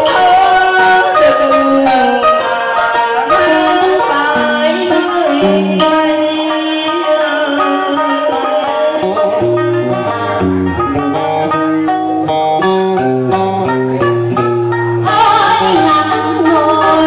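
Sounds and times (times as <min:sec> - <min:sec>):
plucked guitar melody: 0:00.0 - 0:17.0
low held bass: 0:09.0 - 0:17.0.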